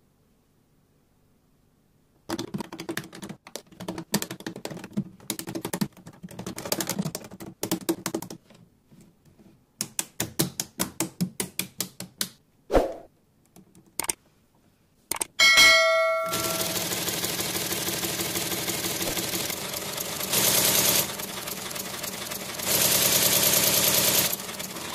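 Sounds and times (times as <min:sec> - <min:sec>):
brief swish: 0:12.7 - 0:13.1.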